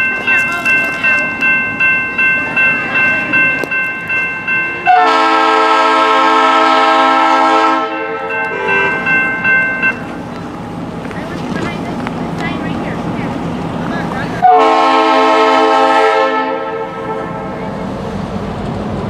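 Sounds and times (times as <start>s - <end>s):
bell ringing: 0.0s - 5.4s, 7.9s - 10.3s
locomotive air horn: 4.9s - 9.0s, 14.4s - 17.8s.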